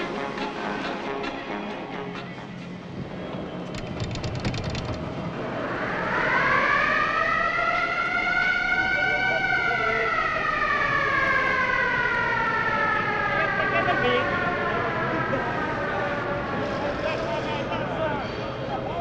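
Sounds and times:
rapid clicks: 3.7 - 5.1.

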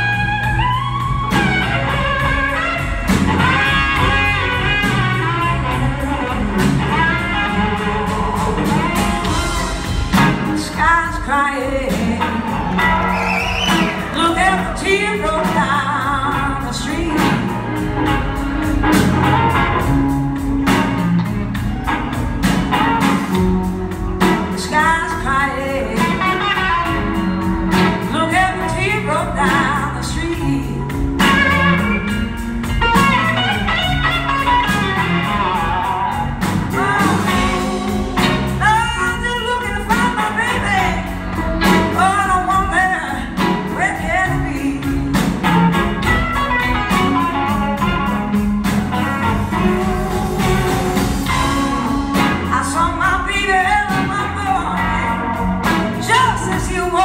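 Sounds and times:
electric guitar bending notes: 0.0 - 10.8, 25.8 - 57.0
live blues band playing: 0.0 - 57.0.

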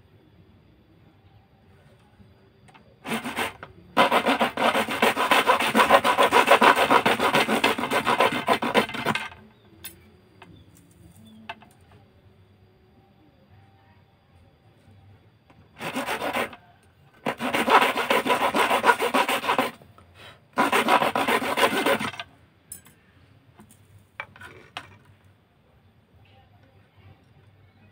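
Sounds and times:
knife sawing thin rod: 3.1 - 9.3, 15.8 - 16.6, 17.2 - 19.8, 20.6 - 22.2.

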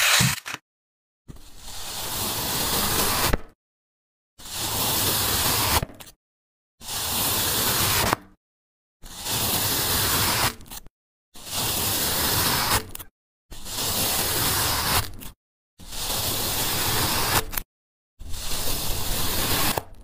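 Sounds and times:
knife scraping through block: 0.0 - 0.6, 1.3 - 3.4, 18.2 - 20.0.

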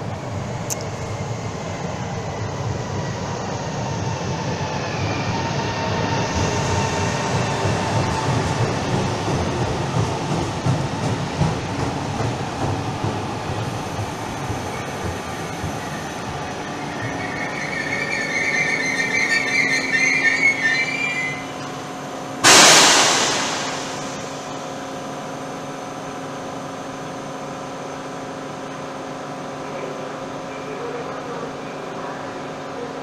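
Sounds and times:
train hum: 0.0 - 33.0
train brake squeal: 16.8 - 24.6
air hiss: 22.4 - 24.8.

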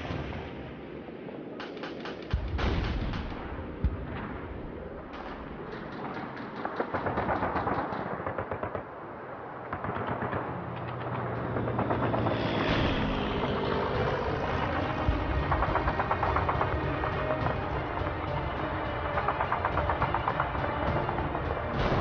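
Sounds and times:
machine-gun fire: 5.8 - 8.9, 9.7 - 22.0.

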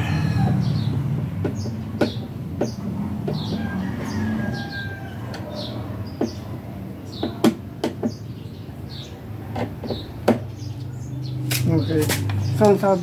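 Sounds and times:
bird chirping: 0.4 - 13.0
hollow knocks on plastic cabinet: 0.9 - 3.6, 7.2 - 8.2, 9.5 - 10.5.

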